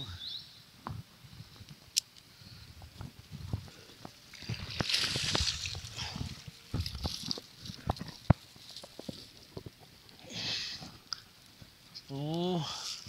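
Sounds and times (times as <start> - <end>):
knocks and rustles in grass: 2.7 - 13.0
fish splashing and thrashing: 4.2 - 8.2.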